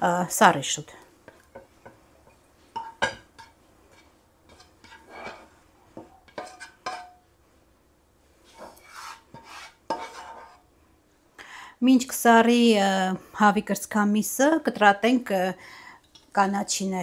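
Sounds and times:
utensil scraping frying pan: 1.2s - 7.3s, 8.4s - 10.7s.

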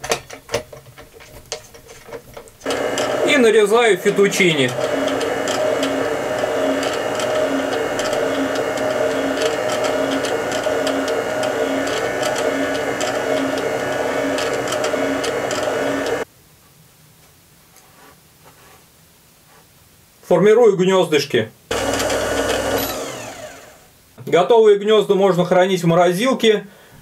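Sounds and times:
faint handling sounds: 0.0s - 2.6s, 16.6s - 19.8s
stand mixer motor whirring: 2.6s - 16.2s, 21.7s - 23.9s.

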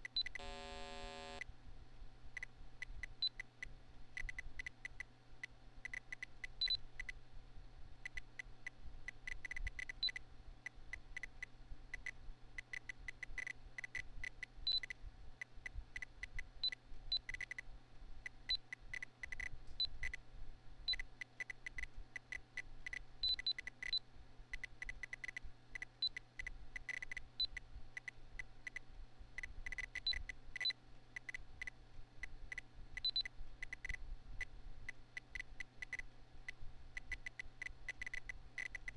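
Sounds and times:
computer fan hum: 0.0s - 12.7s
computer speaker beeps: 0.3s - 1.4s.

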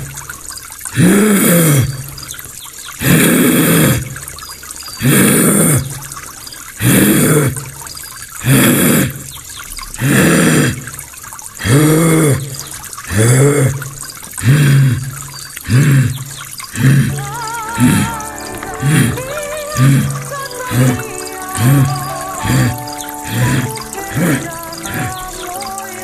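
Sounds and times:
man making grunting animal calls: 1.0s - 1.9s, 6.8s - 7.6s, 11.6s - 12.5s, 13.1s - 13.8s, 16.8s - 25.8s.

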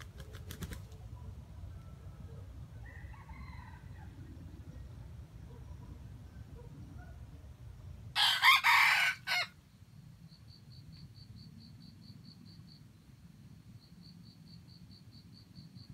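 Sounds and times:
faint insect chirping: 0.0s - 15.9s
rooster crowing: 2.8s - 4.2s, 8.2s - 9.6s.

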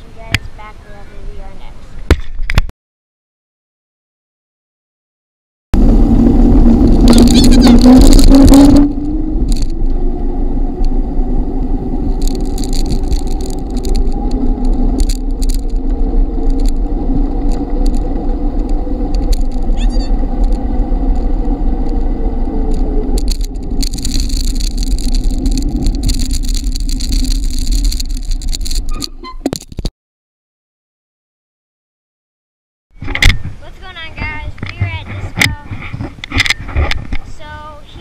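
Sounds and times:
bicycle rolling on asphalt: 5.8s - 29.8s
wind on microphone: 5.8s - 29.9s, 33.0s - 38.0s.

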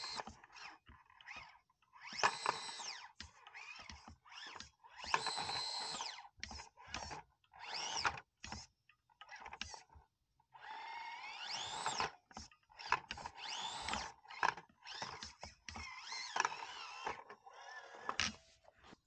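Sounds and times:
electric motor whining: 13.4s - 14.1s.

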